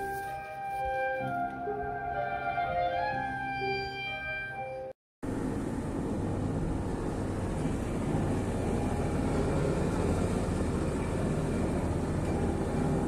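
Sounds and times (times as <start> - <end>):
boat engine droning: 0.0 - 13.0
wind: 5.2 - 13.0.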